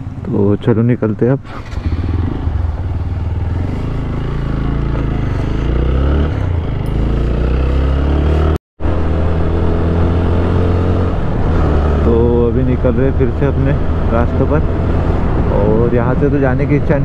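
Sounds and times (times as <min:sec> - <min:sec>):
motorcycle engine accelerating: 0:01.4 - 0:17.0.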